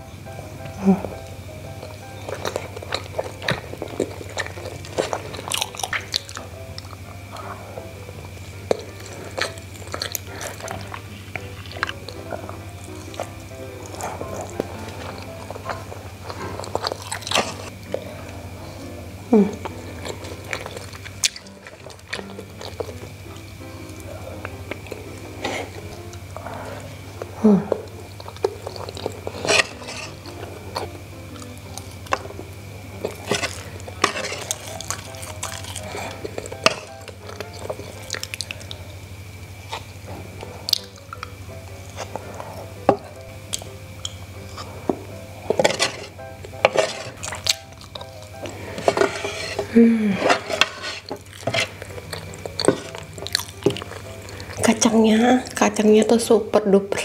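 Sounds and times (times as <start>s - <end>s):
person humming mm: 0.6s - 1.3s, 17.7s - 20.3s, 26.4s - 27.9s, 49.6s - 50.6s
chewing and wet mouth clicks: 1.8s - 7.5s, 8.5s - 12.3s, 33.0s - 38.8s, 39.7s - 41.4s, 47.2s - 48.5s, 51.1s - 54.6s
wooden spoon scraping a tray: 29.3s - 30.4s, 33.0s - 34.7s, 35.9s - 36.8s, 45.5s - 47.2s, 48.4s - 51.8s.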